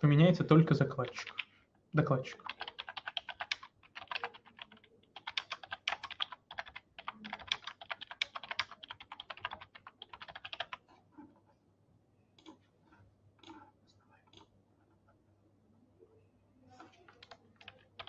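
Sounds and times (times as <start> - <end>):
fast typing on keyboard: 1.0 - 1.5, 2.2 - 10.8, 16.8 - 18.0.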